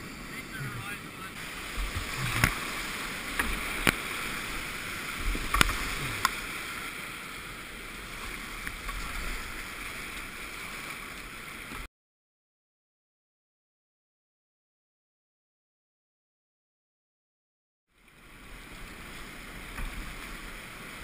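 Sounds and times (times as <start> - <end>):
rushing whitewater: 0.0 - 11.9.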